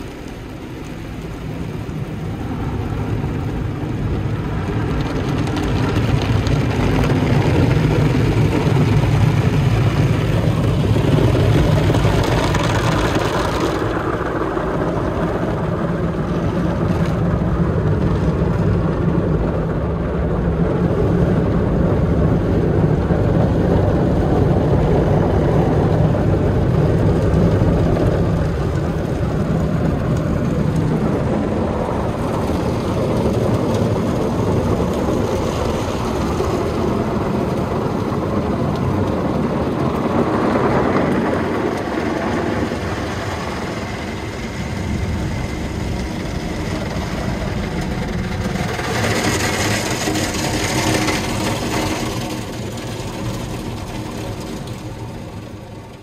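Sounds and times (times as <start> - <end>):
wash machine running: 0.0 - 56.0.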